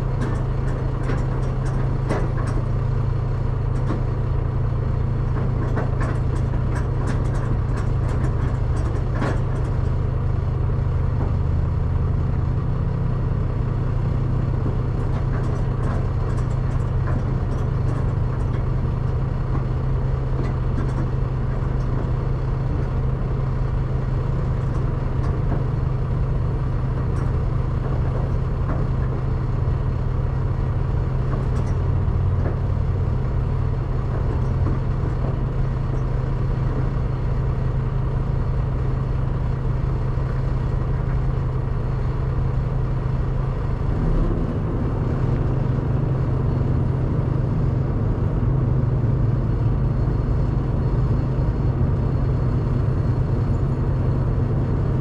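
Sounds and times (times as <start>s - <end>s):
diesel truck idling: 0.0s - 55.0s.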